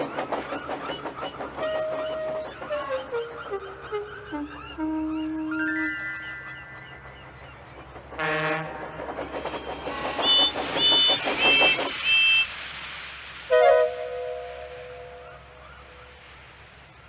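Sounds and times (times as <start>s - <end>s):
steam locomotive puffing: 0.0s - 5.9s, 7.6s - 12.8s.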